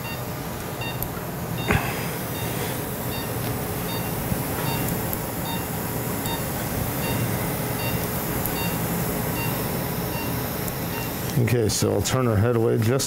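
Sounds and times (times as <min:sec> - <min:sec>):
equipment humming: 0:00.0 - 0:13.0
short electronic beeps: 0:02.4 - 0:11.2.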